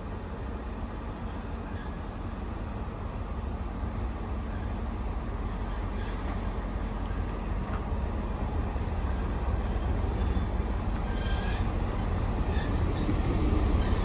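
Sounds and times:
train rumbling on rails: 0.0 - 14.0
faint wheel squeal: 5.6 - 6.5, 9.0 - 14.0.

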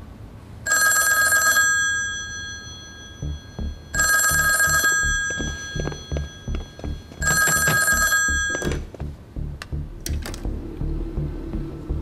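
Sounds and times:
telephone bell ringing: 0.7 - 8.8
tense music with pulsing beat: 3.2 - 12.0.

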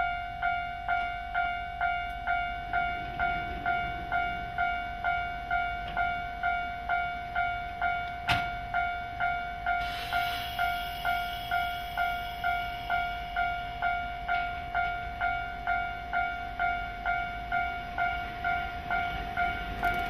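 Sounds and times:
level crossing warning bell: 0.0 - 20.0
train air hiss: 9.8 - 13.4.

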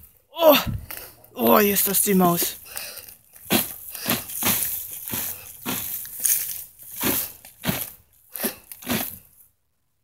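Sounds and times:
dog paws scraping dirt: 3.3 - 9.3.

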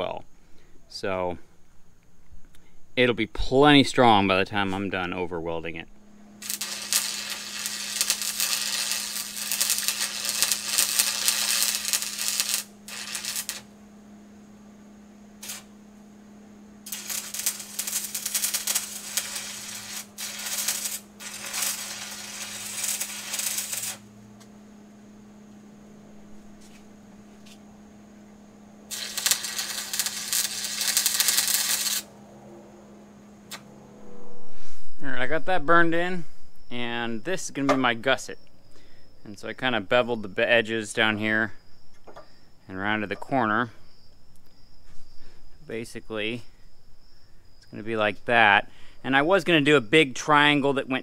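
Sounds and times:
low steady hum: 0.0 - 51.0
welding arc crackling and spitting: 6.4 - 13.7, 15.4 - 15.7, 16.8 - 24.1, 28.9 - 32.1.

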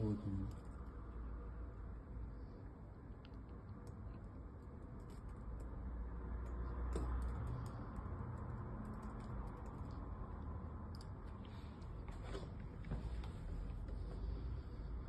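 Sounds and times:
low room hum: 0.0 - 15.0
laptop keyboard typing: 3.7 - 12.6.

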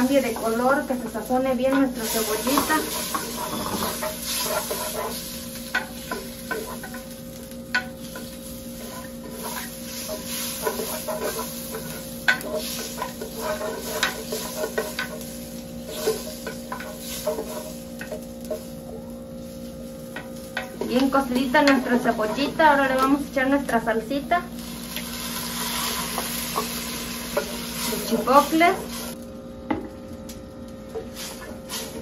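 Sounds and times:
onion sizzling in butter: 0.0 - 29.4, 30.0 - 32.0
utensil scraping clay pot: 1.7 - 7.1, 7.7 - 18.7.

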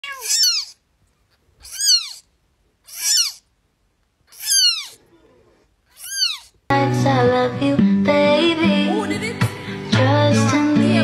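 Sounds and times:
kitten mewing: 0.0 - 0.8, 1.6 - 2.3, 2.9 - 3.5, 4.3 - 6.6.

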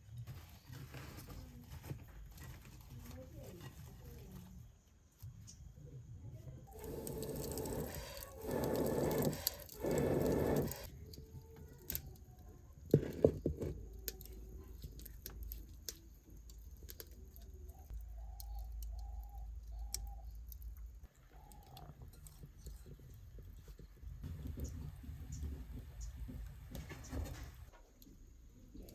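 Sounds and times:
wood fire crackling: 6.6 - 28.9
fire popping: 6.7 - 28.1.

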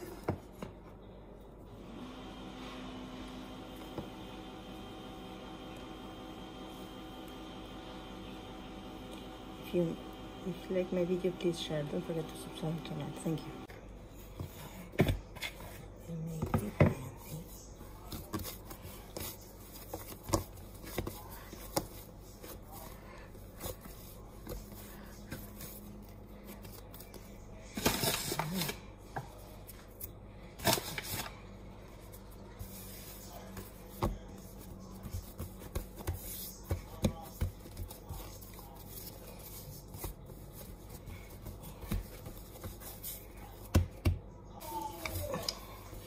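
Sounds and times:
hands patting dough: 14.2 - 27.6, 32.1 - 46.0.

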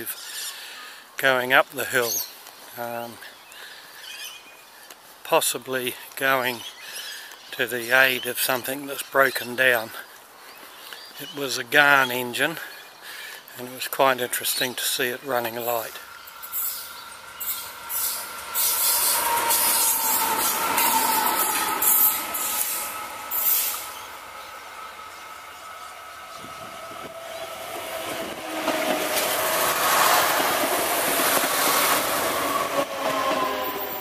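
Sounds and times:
diesel railcar approaching: 14.8 - 34.0
diesel locomotive passing: 15.2 - 34.0
train wheels rumbling: 15.4 - 34.0
steady high tones: 15.5 - 27.1.

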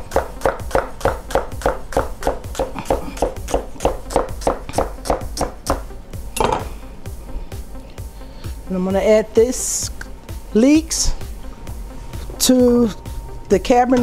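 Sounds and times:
knife chopping on wooden board: 0.1 - 5.8.

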